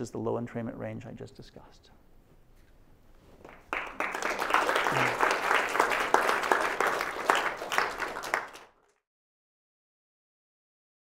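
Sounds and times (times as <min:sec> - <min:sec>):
audience applauding: 0:03.4 - 0:09.0.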